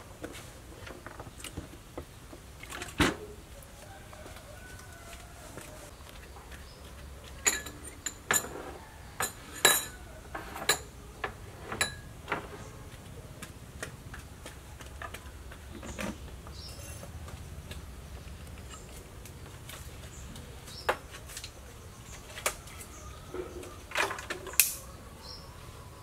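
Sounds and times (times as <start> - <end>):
dishes and utensils clinking: 7.4 - 11.0, 11.6 - 12.6, 16.6 - 17.1.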